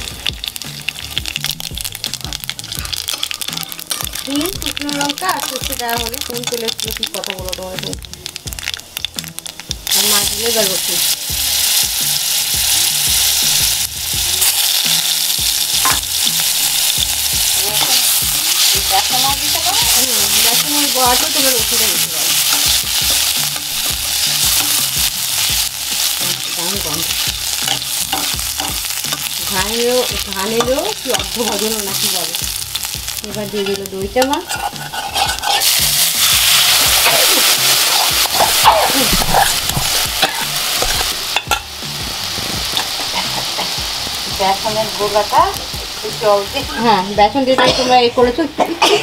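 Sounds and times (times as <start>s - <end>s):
oil sizzling in a pan: 0.0s - 48.8s
spatula scraping a pan: 33.5s - 41.6s.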